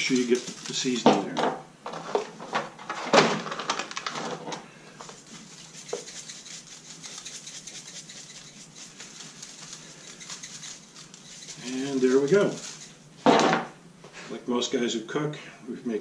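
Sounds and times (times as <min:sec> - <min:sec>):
shaker rattling granules: 0:00.0 - 0:01.1, 0:05.0 - 0:13.0.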